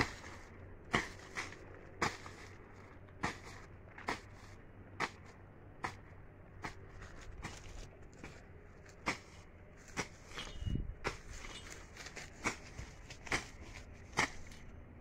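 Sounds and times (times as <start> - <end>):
weeds being ripped by hand: 11.0 - 14.6.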